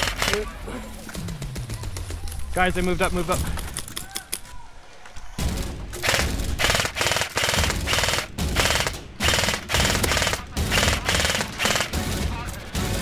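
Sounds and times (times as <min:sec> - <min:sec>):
airsoft gun full-auto bursts: 0:00.0 - 0:00.5, 0:06.0 - 0:12.1.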